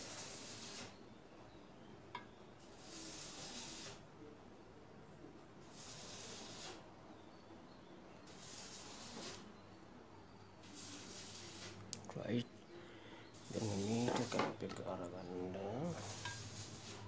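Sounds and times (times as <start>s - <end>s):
high-pitched hissing bursts: 0.0s - 0.9s, 2.7s - 4.0s, 5.7s - 6.8s, 8.3s - 9.5s, 10.6s - 11.8s, 13.3s - 14.4s, 15.8s - 17.0s.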